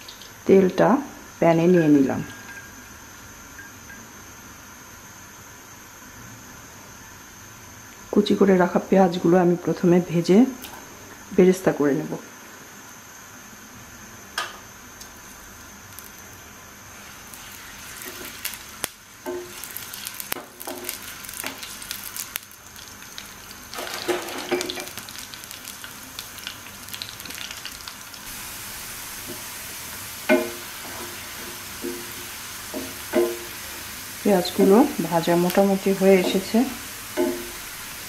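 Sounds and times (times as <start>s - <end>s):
onions sizzling in oil: 0.0s - 8.8s, 12.8s - 38.0s
spatula scraping and knocking pan: 20.3s - 21.6s, 30.2s - 38.0s.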